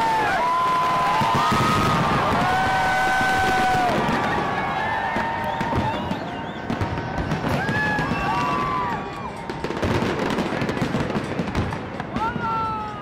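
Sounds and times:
fireworks bursting and crackling: 0.0s - 13.0s.

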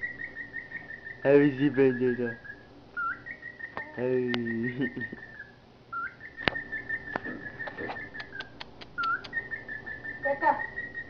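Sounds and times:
cockatiel whistling: 0.0s - 11.0s
sharp clicks: 7.2s - 9.4s.

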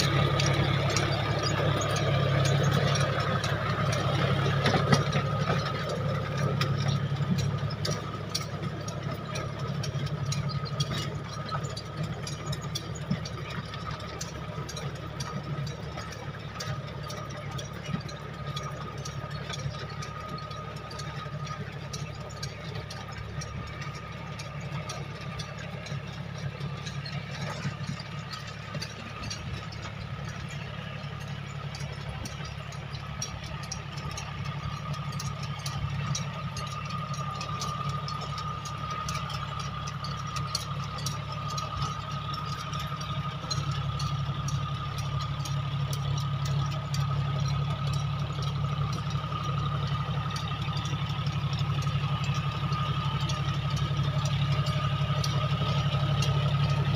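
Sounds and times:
ticks and rattles: 0.0s - 56.9s
tractor diesel engine: 0.0s - 56.9s
thin steady whine: 18.2s - 56.9s.

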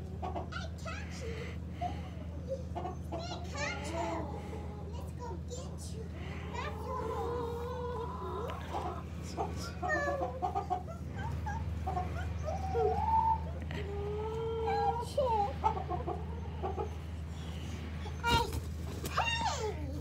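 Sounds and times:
hens clucking: 0.0s - 20.0s
hens drawn-out calls: 6.2s - 18.2s.

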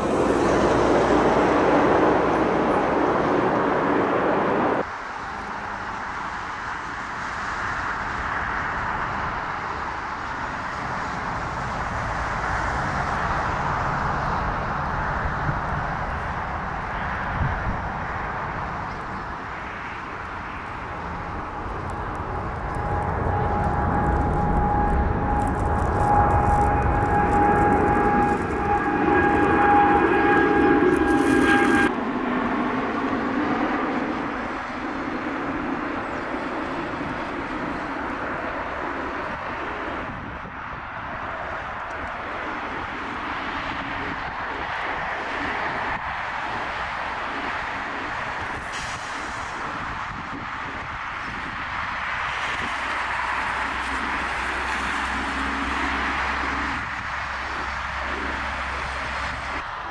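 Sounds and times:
jet engines roaring overhead: 0.0s - 59.9s
high fan whine: 14.4s - 43.2s.

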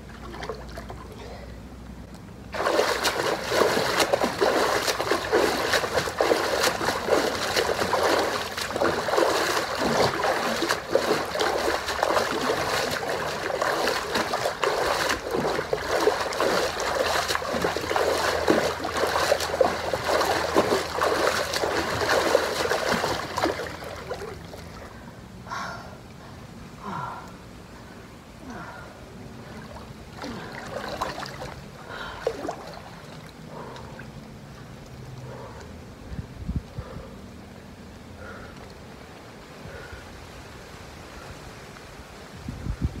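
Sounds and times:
feet splashing water: 0.0s - 1.2s, 2.5s - 25.0s, 29.4s - 35.8s.

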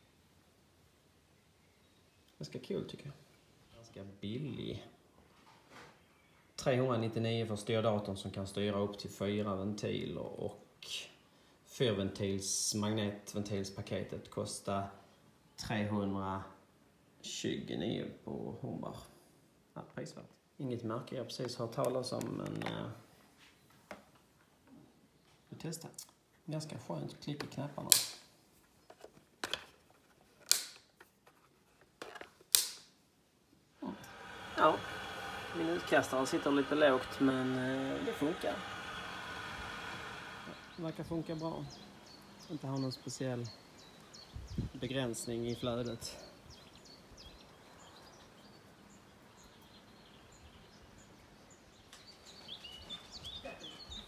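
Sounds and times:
outdoor background noise: 0.0s - 54.0s
birds chirping and singing: 39.8s - 54.0s.

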